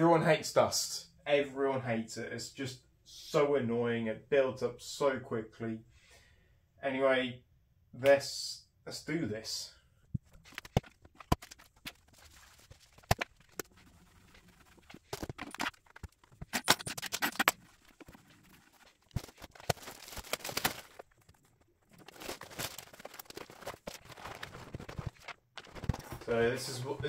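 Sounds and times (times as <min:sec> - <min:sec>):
cardboard and paper rustling: 0:10.2 - 0:27.0.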